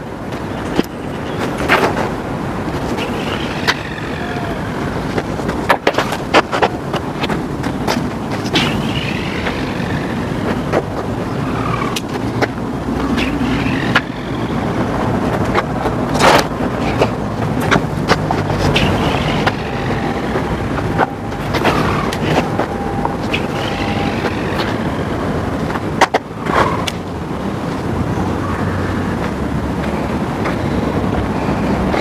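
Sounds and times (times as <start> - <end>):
wind buffeting microphone: 0.0 - 32.0
sharp crackles: 15.4 - 24.9.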